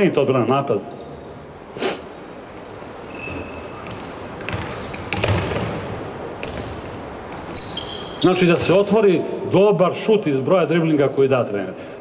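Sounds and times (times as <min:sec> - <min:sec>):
sneakers squeaking: 0:00.9 - 0:08.9
basketball bouncing on court: 0:02.6 - 0:08.3.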